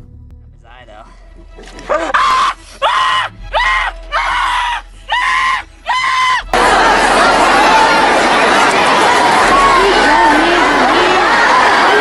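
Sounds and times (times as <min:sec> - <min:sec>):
person screaming: 0:01.9 - 0:06.4.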